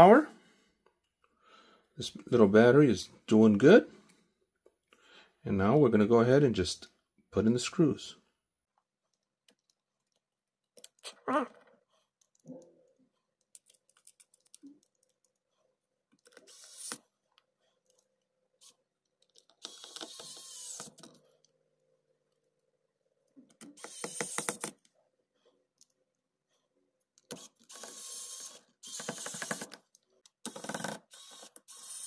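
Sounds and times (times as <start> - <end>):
small screws clicking and tapping: 9.1 - 11.0, 12.2 - 15.5, 16.1 - 21.6, 23.3 - 24.9, 27.1 - 32.0
electric screwdriver motor: 16.4 - 17.0, 19.6 - 21.0, 23.7 - 24.7, 27.3 - 29.8, 30.5 - 32.0.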